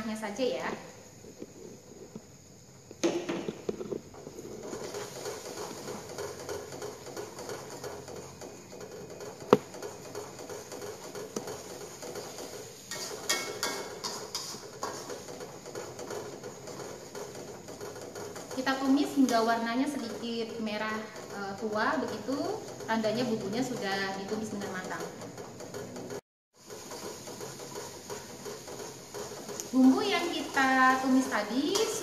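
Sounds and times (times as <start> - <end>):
spice paste sizzling in oil: 0.0 - 24.9, 26.1 - 32.0
metal spatula scraping a wok: 4.1 - 20.1, 23.0 - 32.0.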